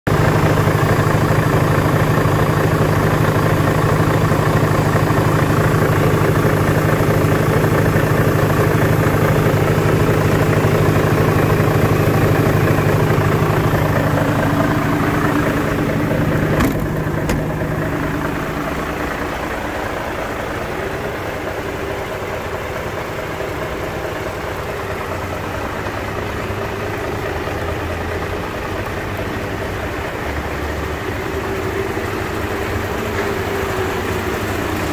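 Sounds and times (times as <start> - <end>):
diesel engine idling: 0.1 - 34.9
single knock: 16.6 - 17.6.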